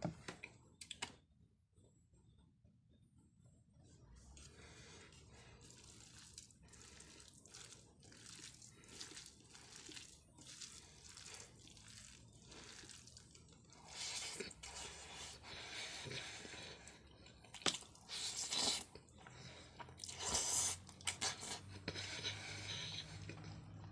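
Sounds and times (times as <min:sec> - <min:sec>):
fingers squishing wet food: 0:04.3 - 0:22.6.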